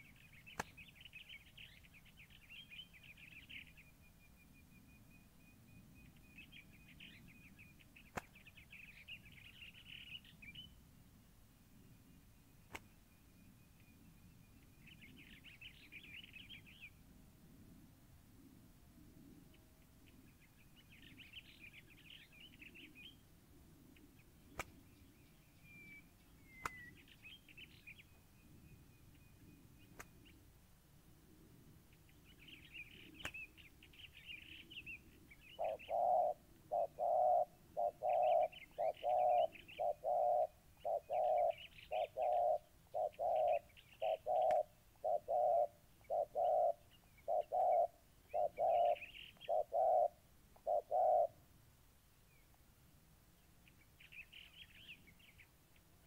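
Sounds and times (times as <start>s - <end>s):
small birds chirping: 0.0s - 10.8s, 11.7s - 17.0s, 19.5s - 30.5s, 31.9s - 51.4s, 53.3s - 56.0s
doves cooing: 35.6s - 51.4s.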